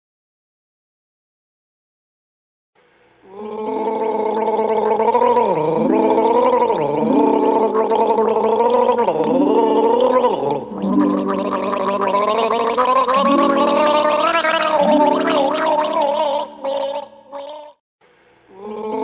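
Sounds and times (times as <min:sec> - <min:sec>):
wavering lead tones: 0:05.7 - 0:08.4, 0:09.2 - 0:12.4, 0:13.1 - 0:16.7.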